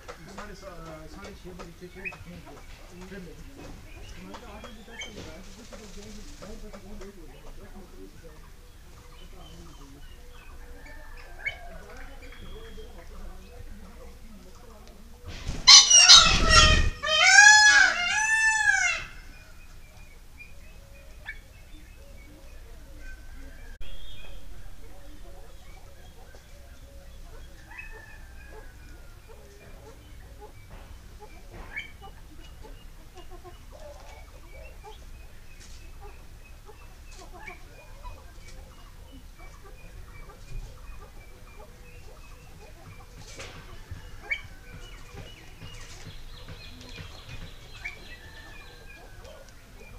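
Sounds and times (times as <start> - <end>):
pheasant crowing: 0.0 - 49.9.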